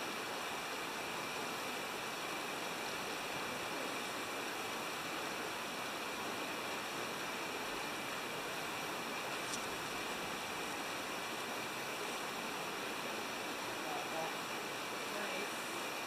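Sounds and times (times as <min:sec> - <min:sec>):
river water rushing: 0:00.0 - 0:16.0.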